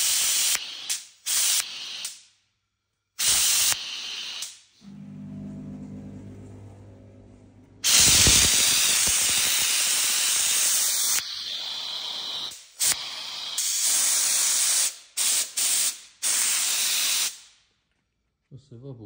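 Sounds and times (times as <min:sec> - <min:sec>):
steam cleaner hissing: 0:00.0 - 0:02.2, 0:03.2 - 0:05.5, 0:07.8 - 0:17.4
low hum: 0:04.8 - 0:07.9.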